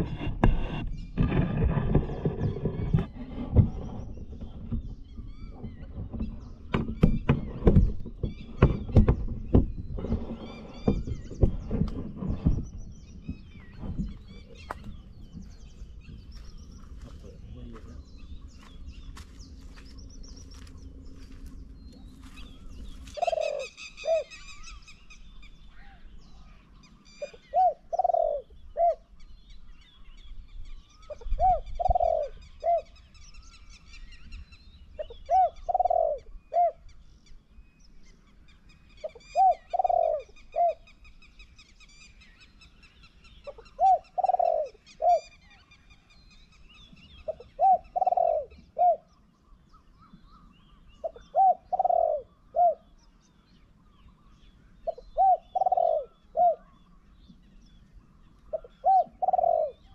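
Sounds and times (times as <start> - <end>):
small birds chirping: 0.0 - 59.9
dove cooing: 22.1 - 24.6, 27.2 - 29.1, 31.1 - 33.0, 35.0 - 36.8, 39.0 - 40.9, 43.5 - 45.3, 47.2 - 49.1, 51.0 - 52.9, 54.8 - 56.8, 58.5 - 59.9.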